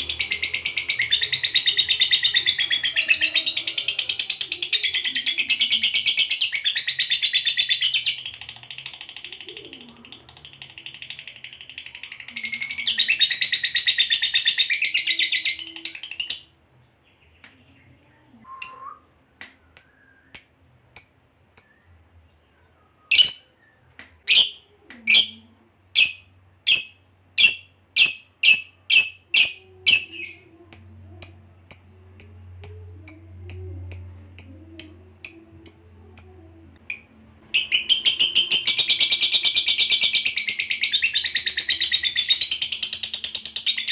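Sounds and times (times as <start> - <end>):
lovebird sharp chirps: 18.6 - 19.0, 19.7 - 22.3, 23.1 - 23.6, 26.0 - 41.2
lovebird chattering trill: 23.1 - 23.5, 26.0 - 43.9.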